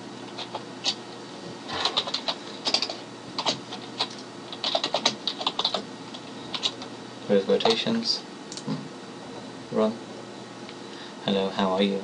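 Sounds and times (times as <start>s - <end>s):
keyboard typing clicks: 1.9s - 5.8s, 8.5s - 8.8s.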